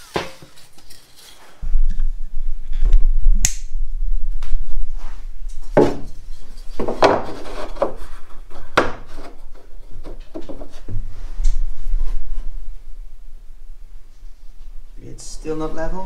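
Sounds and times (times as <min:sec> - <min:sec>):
low steady hum: 0:00.0 - 0:16.0
wood scraping and knocking on wood: 0:05.6 - 0:12.5.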